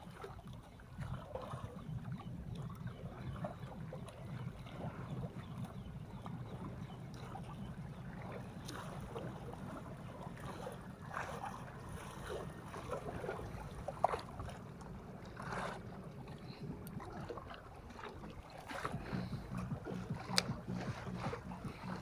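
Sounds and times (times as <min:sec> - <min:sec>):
steady low hum: 0:01.0 - 0:22.0
water splashing against rocks: 0:08.6 - 0:22.0.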